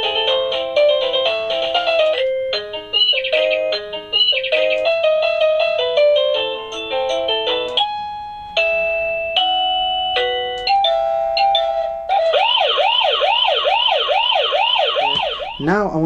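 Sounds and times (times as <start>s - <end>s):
doorbell chime beeping melody: 2.1s - 13.0s
siren-like electronic warble: 12.1s - 15.7s.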